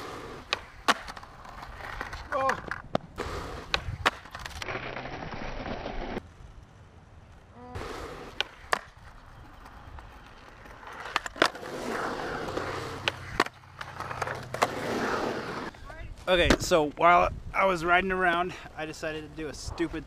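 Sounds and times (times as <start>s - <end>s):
skateboard trucks grinding on coping: 0.0s - 6.2s, 7.7s - 15.8s
skateboard wheels rolling on concrete: 0.0s - 20.0s
skateboard clacking on concrete: 0.4s - 4.7s, 7.8s - 14.8s.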